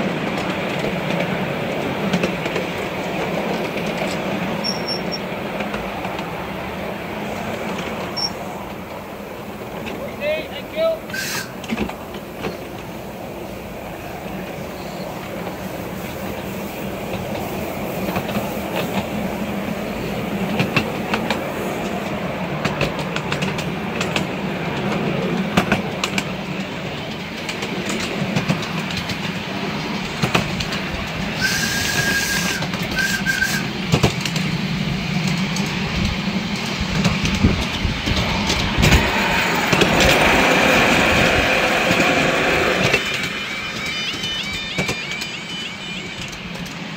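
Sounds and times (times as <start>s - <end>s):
wheels rumbling on rail: 0.0s - 46.9s
clicks over rail joints: 20.5s - 29.4s.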